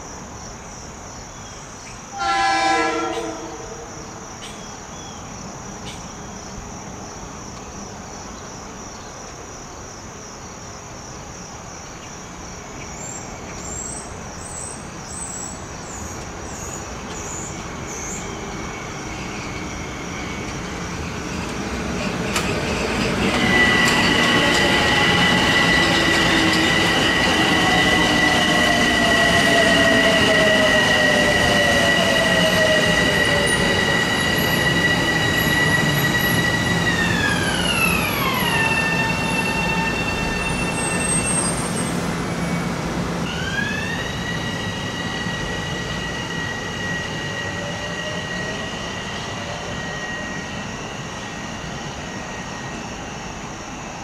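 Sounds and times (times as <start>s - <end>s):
train rolling rumble: 12.3s - 54.0s.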